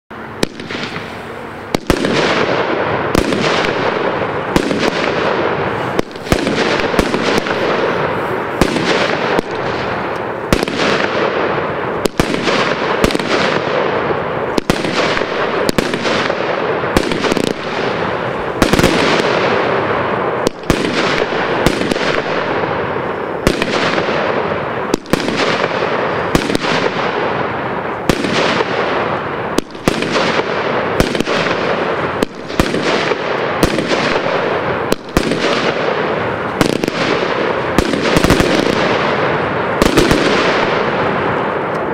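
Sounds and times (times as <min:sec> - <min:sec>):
fireworks crackling: 0:00.1 - 0:41.9
fireworks shots firing: 0:00.1 - 0:41.9.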